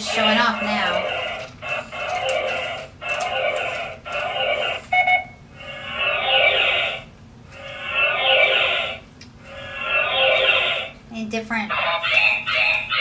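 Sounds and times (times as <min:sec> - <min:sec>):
toy robot sound effects: 0:00.0 - 0:05.0, 0:11.7 - 0:13.0.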